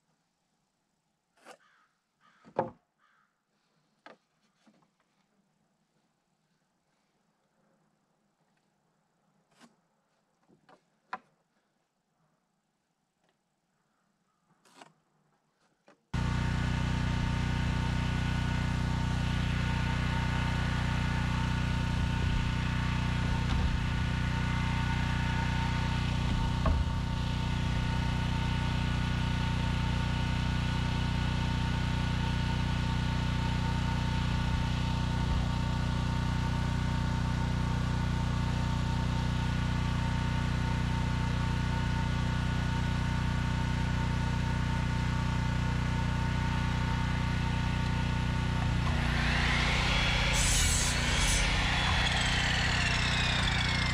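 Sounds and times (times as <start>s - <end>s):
machine hum with low drone: 16.2s - 36.1s, 46.8s - 53.9s.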